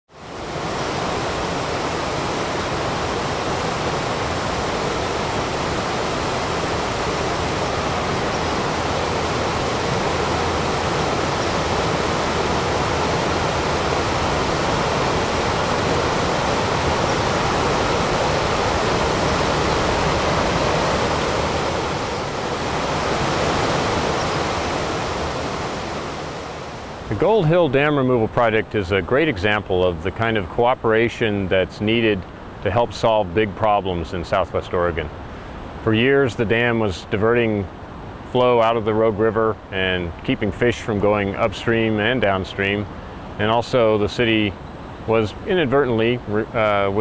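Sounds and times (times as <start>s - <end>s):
rushing river water: 0.1s - 30.2s.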